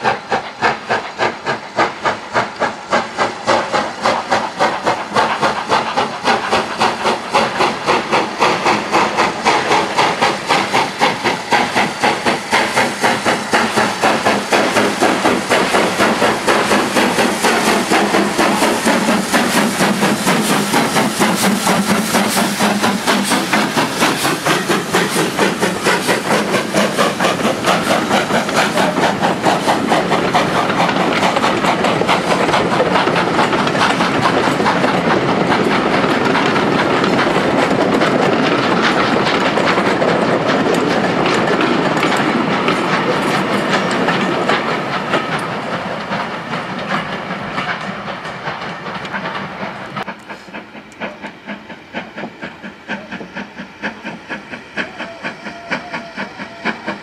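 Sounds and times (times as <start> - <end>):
coach wheels clicking over rail joints: 0.0 - 57.0
steam locomotive exhaust beat: 0.0 - 57.0.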